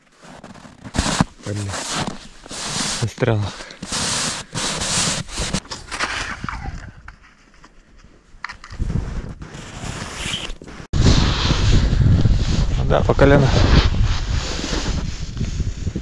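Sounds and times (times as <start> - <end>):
footsteps crunching through deep snow: 0.0 - 6.4
wind buffeting microphone: 10.9 - 16.0.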